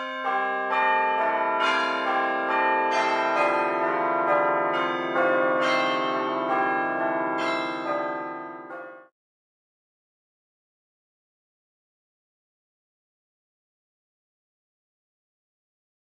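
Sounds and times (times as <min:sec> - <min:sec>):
bells ringing: 0:00.0 - 0:09.1.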